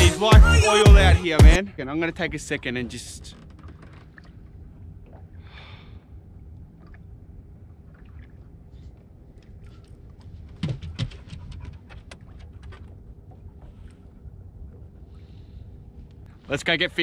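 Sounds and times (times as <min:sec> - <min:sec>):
wind and water rumble: 0:01.6 - 0:17.0
person breathing: 0:05.4 - 0:06.2, 0:15.1 - 0:15.8.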